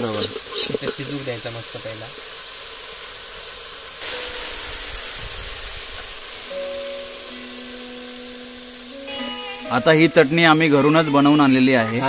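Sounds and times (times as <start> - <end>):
meat sizzling in a pot: 0.0 - 12.0
faint background music: 6.5 - 12.0.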